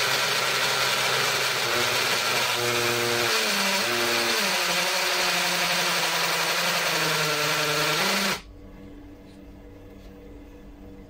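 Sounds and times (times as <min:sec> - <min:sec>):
drill boring into concrete: 0:00.0 - 0:08.4.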